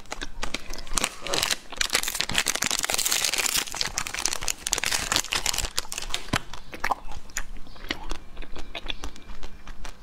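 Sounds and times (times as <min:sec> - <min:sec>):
plastic wrapper crinkling: 0:00.0 - 0:06.7.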